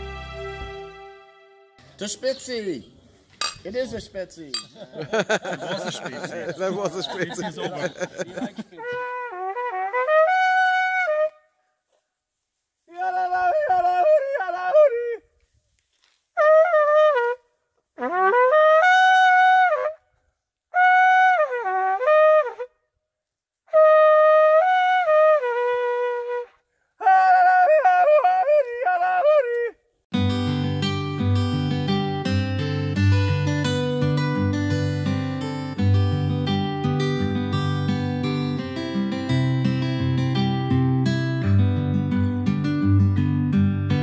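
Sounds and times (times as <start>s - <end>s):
solo brass horn fanfare: 0.0s - 1.8s, 8.8s - 11.3s, 18.0s - 20.0s, 23.7s - 26.5s.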